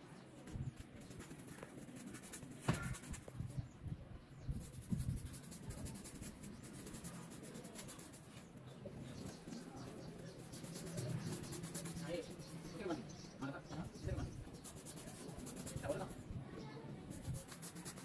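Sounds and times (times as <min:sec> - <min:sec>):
paintbrush scrubbing on plaster wall: 0:00.9 - 0:03.6, 0:04.4 - 0:08.6, 0:09.2 - 0:13.2, 0:13.8 - 0:16.2, 0:17.1 - 0:18.0
sharp knock: 0:02.6 - 0:03.2.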